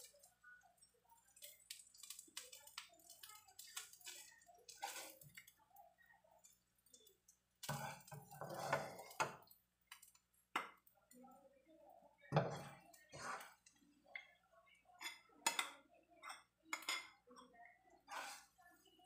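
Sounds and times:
spatula scraping a wok: 3.8 - 5.5, 7.6 - 9.4, 12.4 - 13.7, 18.0 - 18.6.

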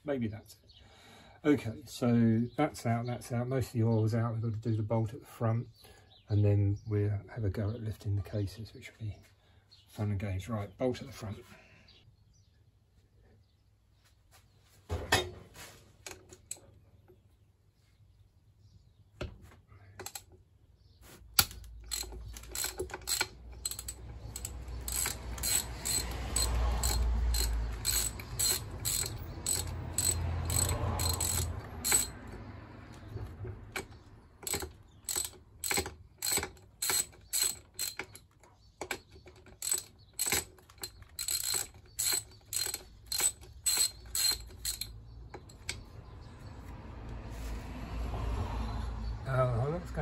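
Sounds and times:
socket ratchet clicking: 21.4 - 45.9.

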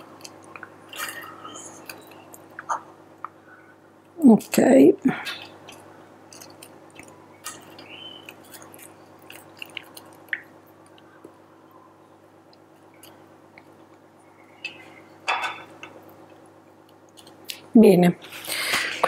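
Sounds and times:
faint steady hum: 0.0 - 19.0
wet squishing of soaked biscuits: 5.2 - 11.5.

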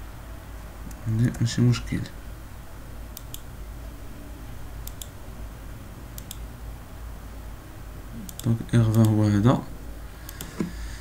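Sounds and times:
low electrical hum: 0.0 - 11.0
computer mouse double-clicks: 3.2 - 3.4, 6.2 - 6.4.

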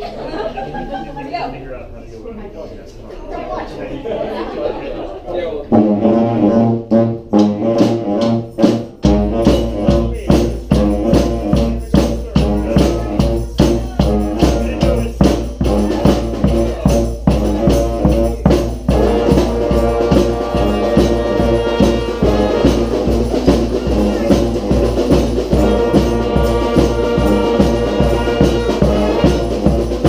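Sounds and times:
brass band playing: 5.6 - 30.0
bass drum and snare beat: 7.1 - 30.0.

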